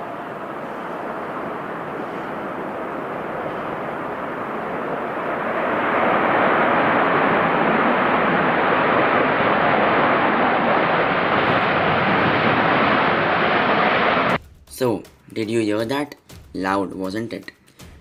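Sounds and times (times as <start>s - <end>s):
jet engines roaring: 0.0s - 14.4s.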